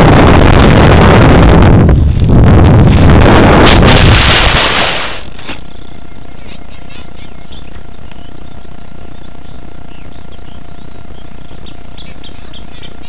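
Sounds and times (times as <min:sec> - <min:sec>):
loud steady rushing noise: 0:00.0 - 0:06.3
small birds chirping: 0:05.4 - 0:13.0.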